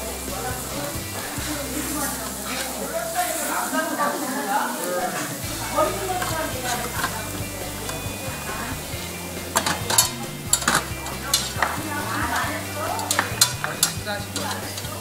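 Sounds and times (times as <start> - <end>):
meat sizzling on a grill: 0.0 - 15.0
metal tongs clinking: 5.1 - 15.0.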